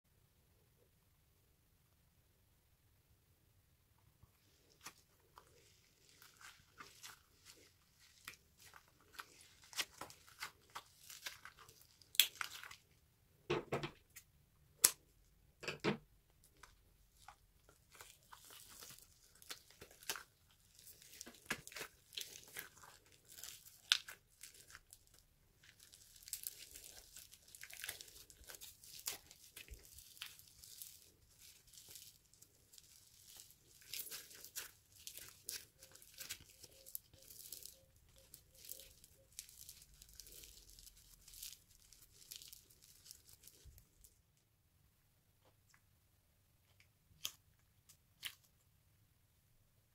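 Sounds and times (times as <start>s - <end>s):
foam beads crunching and crackling: 4.8s - 12.8s, 17.2s - 44.2s
rubber skin tearing: 17.9s - 43.7s.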